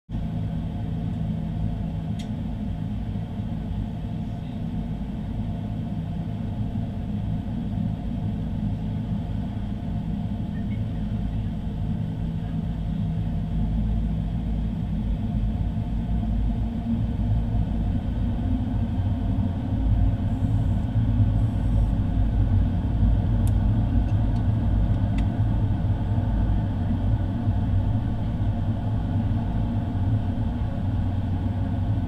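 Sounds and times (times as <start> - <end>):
aircraft cabin engine rumble: 0.1 - 32.0
small click: 2.2 - 2.4.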